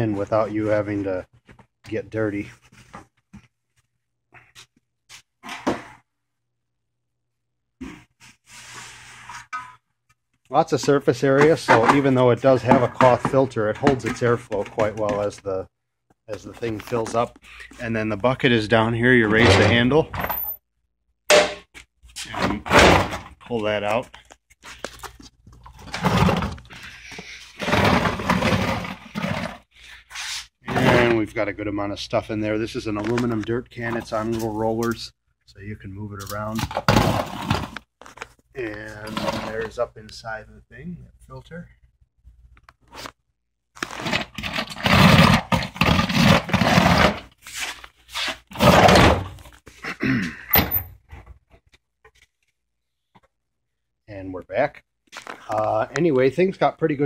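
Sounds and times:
metal can scraping and thunking: 27.6s - 29.6s.

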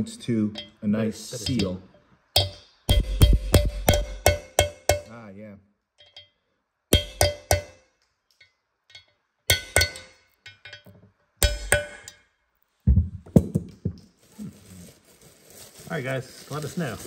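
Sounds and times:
hammer tapping on metal: 1.4s - 5.2s, 6.0s - 12.2s.

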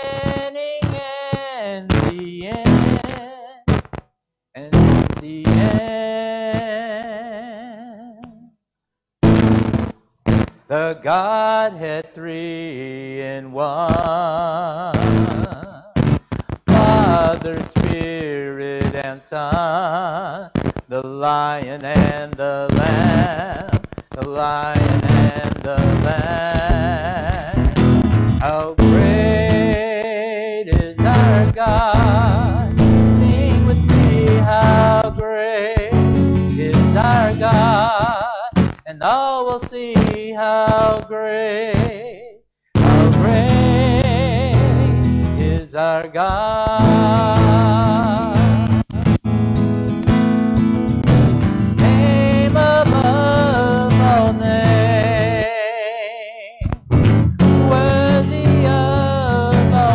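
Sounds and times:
man singing a hymn: 0.0s - 3.6s, 4.6s - 8.5s, 10.7s - 16.0s, 16.6s - 49.1s, 51.8s - 56.6s, 57.4s - 59.9s
instrumental accompaniment: 46.8s - 55.2s.

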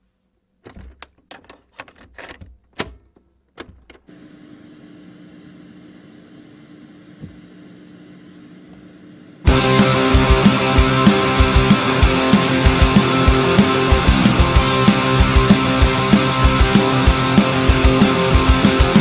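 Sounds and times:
scattered clicks and knocks: 0.6s - 4.1s
punk rock band with electric guitars: 9.5s - 19.0s.

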